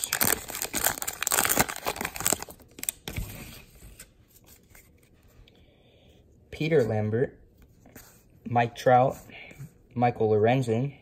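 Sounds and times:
wrapper tearing and crinkling: 0.0s - 3.1s.

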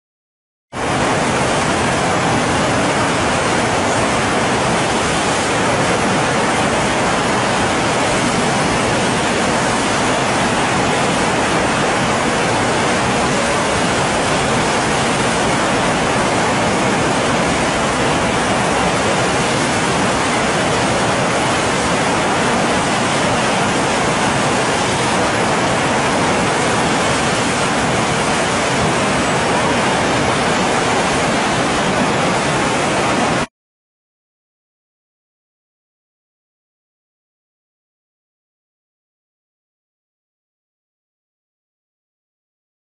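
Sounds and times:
river whitewater rushing: 0.8s - 33.5s.

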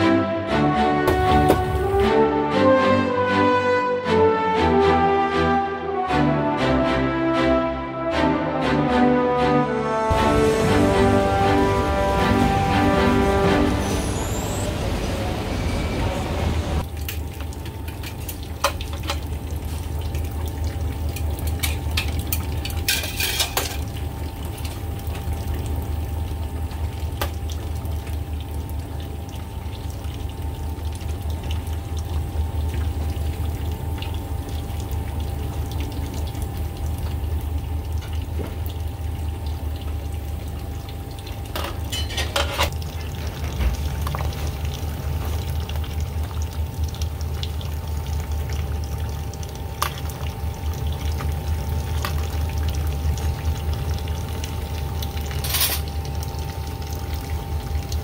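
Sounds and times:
broth bubbling in pot: 16.8s - 58.0s
utensil clattering against pot: 21.6s - 23.9s, 41.6s - 42.8s.

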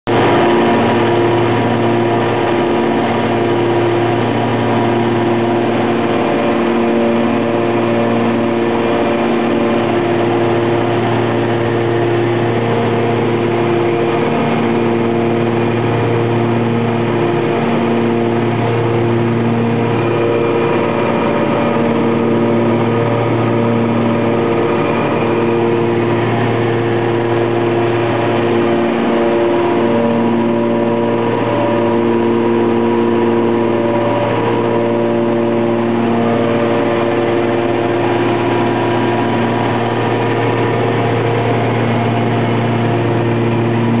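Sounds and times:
aircraft engines droning in cockpit: 0.1s - 44.0s.

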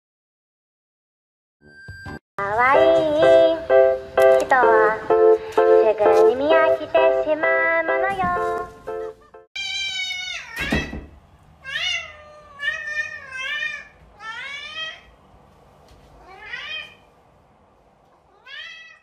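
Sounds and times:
cat meowing: 9.6s - 11.0s, 11.6s - 15.1s, 16.2s - 17.1s, 18.2s - 19.0s.

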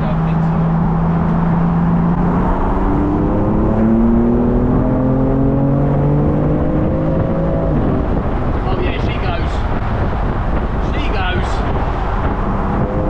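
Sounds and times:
car engine accelerating: 0.0s - 9.0s, 11.6s - 13.0s
road noise: 0.0s - 13.0s
wind noise: 0.2s - 13.0s.

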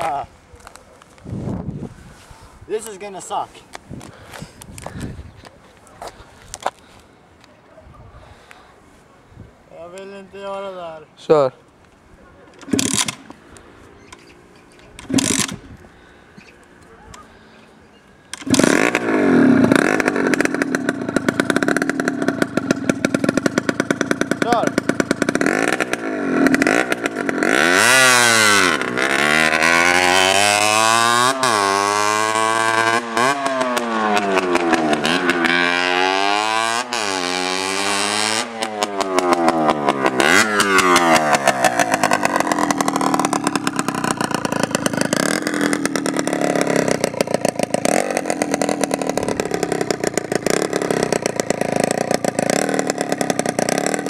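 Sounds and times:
two-stroke motorcycle engine revving: 12.5s - 16.4s, 18.2s - 54.0s.

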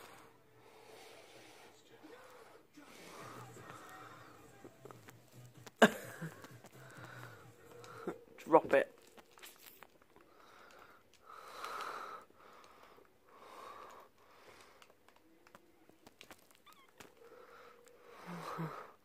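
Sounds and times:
soft wheezy breathing: 0.0s - 8.4s, 9.3s - 15.6s, 16.2s - 19.0s
faint clicks: 9.0s - 18.0s.

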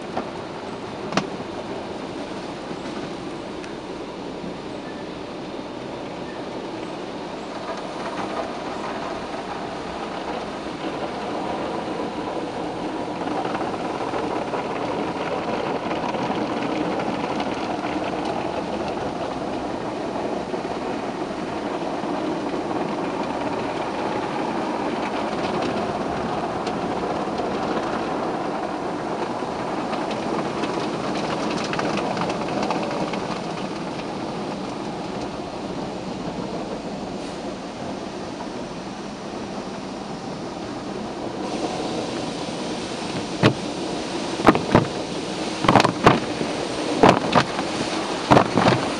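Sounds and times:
car wash machinery running: 0.0s - 48.9s
water spraying: 7.0s - 48.9s
cloth brushes rubbing on car: 45.6s - 48.9s.

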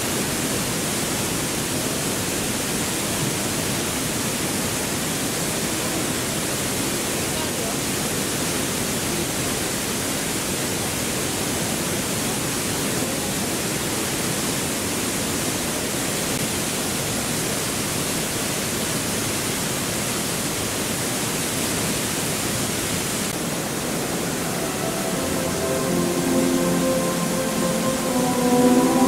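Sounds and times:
waterfall rushing: 23.1s - 29.0s.

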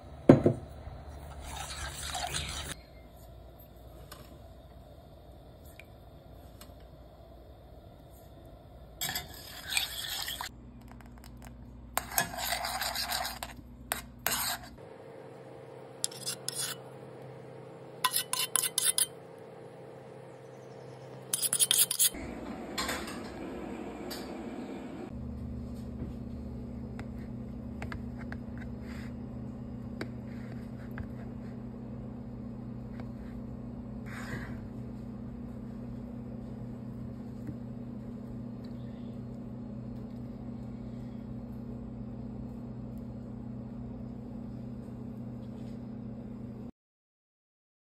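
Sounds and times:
metal spoon scraping steel pan: 1.4s - 2.8s, 9.0s - 10.5s, 12.0s - 14.8s, 16.0s - 16.9s, 18.0s - 19.2s, 21.3s - 22.2s.

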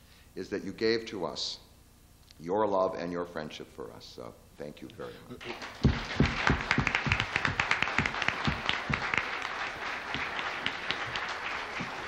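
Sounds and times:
audience applause: 5.4s - 12.0s.

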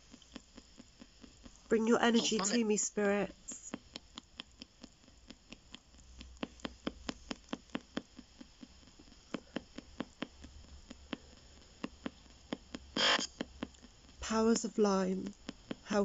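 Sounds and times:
faint radio static: 1.5s - 3.9s, 11.1s - 16.0s
radio sweep sharp clicks: 12.5s - 13.7s.

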